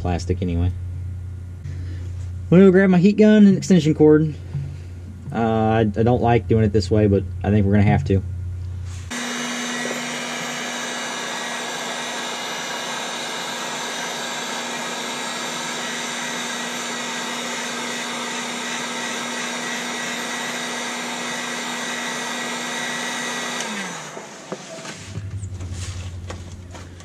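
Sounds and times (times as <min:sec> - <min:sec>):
heat gun blowing with motor hum: 0:08.9 - 0:27.0.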